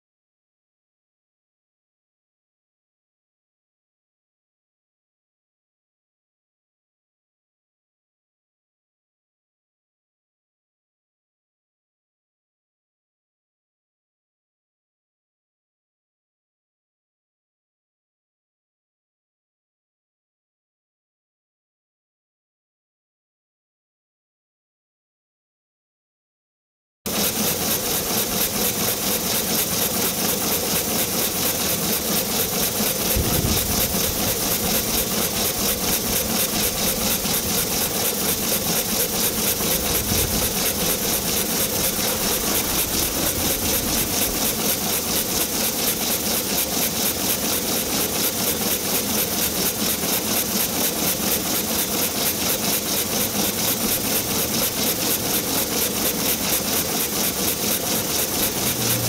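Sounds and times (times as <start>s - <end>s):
steam engine chuffing and hissing: 27.1s - 59.0s.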